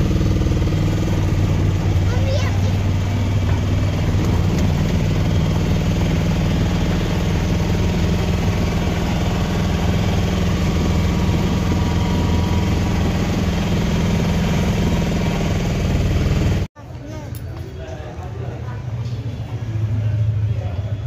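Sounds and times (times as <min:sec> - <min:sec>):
vehicle engine drone from cabin: 0:00.0 - 0:16.7.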